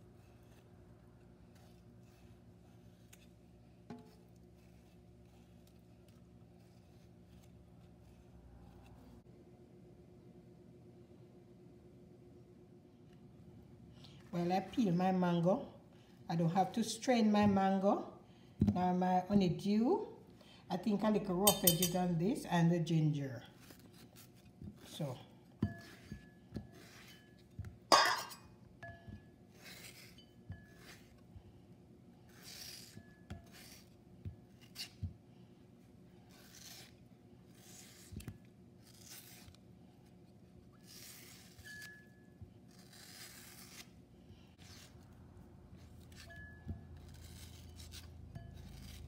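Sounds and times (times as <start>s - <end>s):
knife slicing mango: 0.0s - 9.2s, 23.5s - 28.3s, 29.0s - 31.3s, 32.2s - 35.2s, 36.2s - 49.0s.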